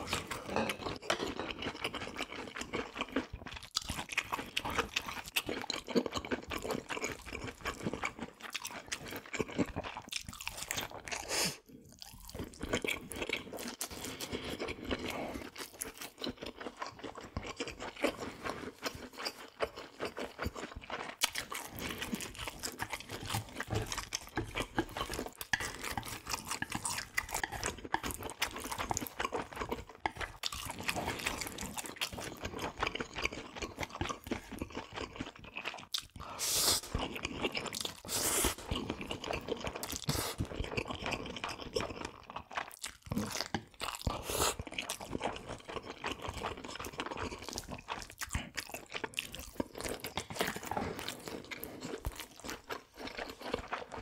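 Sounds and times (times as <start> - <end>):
chewing and crunching food: 0.0 - 54.0
slurps: 40.0 - 40.5.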